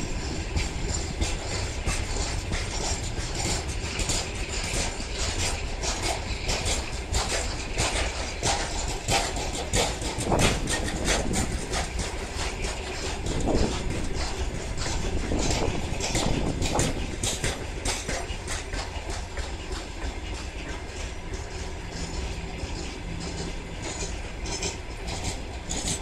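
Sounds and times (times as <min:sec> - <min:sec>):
train running gear squealing: 0:00.0 - 0:26.0
train wheels clacking over rail joints: 0:00.0 - 0:26.0.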